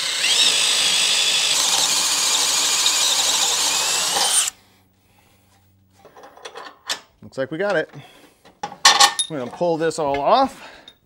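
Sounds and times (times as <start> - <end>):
power drill cutting steel: 0.0 - 4.6.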